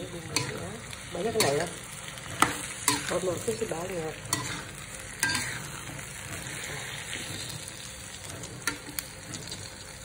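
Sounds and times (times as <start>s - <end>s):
vegetables sizzling in a wok: 0.0s - 10.0s
metal spatula stirring: 1.3s - 3.6s, 4.2s - 9.6s.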